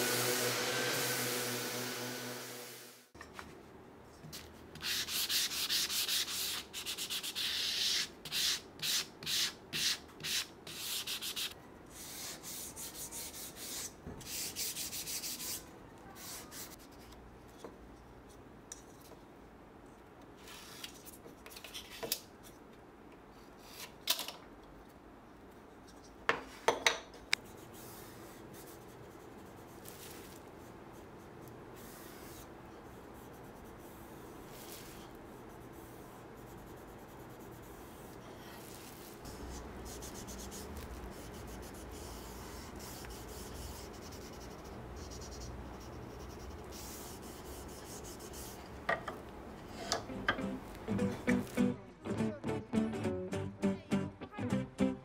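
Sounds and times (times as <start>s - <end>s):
sanding wood by hand: 0.0s - 2.8s.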